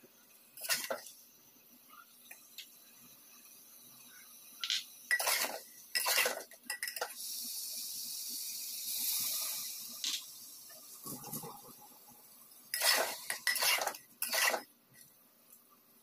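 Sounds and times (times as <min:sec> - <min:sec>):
food sizzling: 0:00.0 - 0:15.8
liquid pouring: 0:07.0 - 0:14.6
spatula scraping metal pot: 0:12.7 - 0:14.7.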